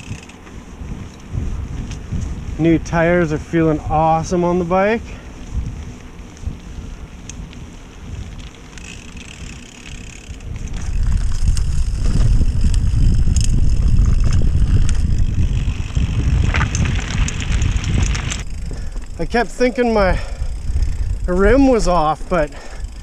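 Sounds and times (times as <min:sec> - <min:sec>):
bicycle rumbling over dirt trail: 0:00.0 - 0:23.0
wind noise on microphone: 0:00.0 - 0:23.0
scattered clicks: 0:08.3 - 0:21.6.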